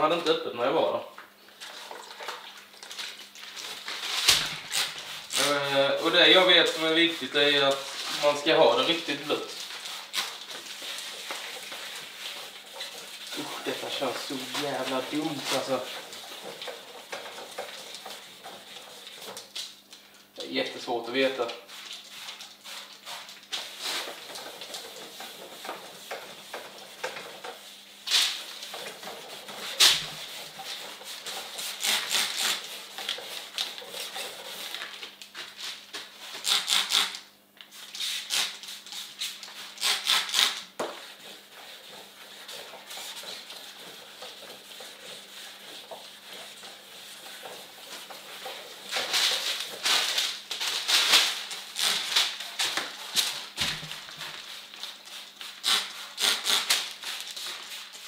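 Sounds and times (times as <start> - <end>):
wet sandpaper rasping on paint: 4.8 - 19.6, 21.1 - 34.8, 37.9 - 50.8, 54.5 - 58.0
spray bottle squirts: 36.4 - 37.2, 37.9 - 40.7, 55.4 - 56.9.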